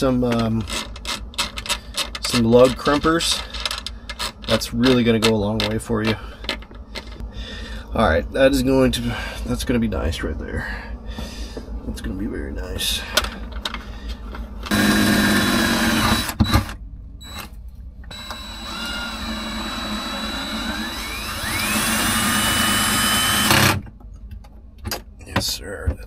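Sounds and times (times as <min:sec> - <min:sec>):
electric power tool whining: 0:14.7 - 0:17.5, 0:18.1 - 0:23.8.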